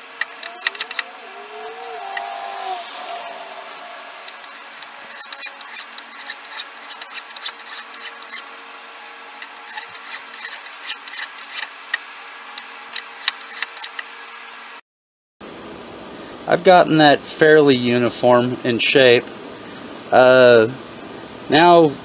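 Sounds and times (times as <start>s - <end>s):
hand file rasping on wood: 3.7s - 8.4s, 9.6s - 11.7s.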